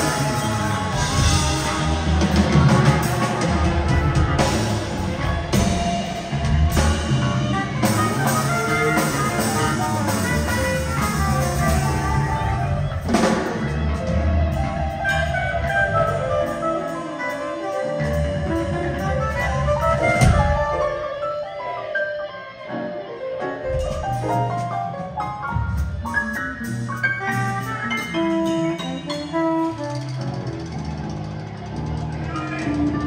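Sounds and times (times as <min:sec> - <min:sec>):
live rock band playing: 0:00.0 - 0:33.0
woodwind: 0:00.0 - 0:33.0.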